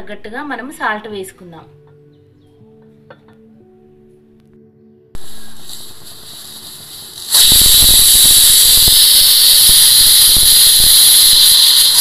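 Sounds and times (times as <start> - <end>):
pressure cooker whistling: 5.2 - 12.0.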